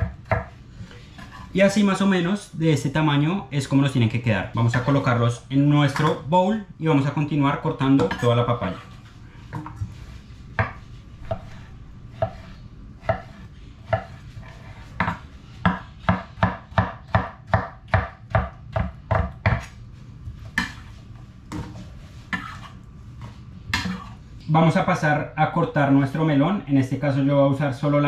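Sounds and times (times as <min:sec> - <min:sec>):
knife chopping fruit: 0:12.2 - 0:14.2, 0:14.9 - 0:19.7.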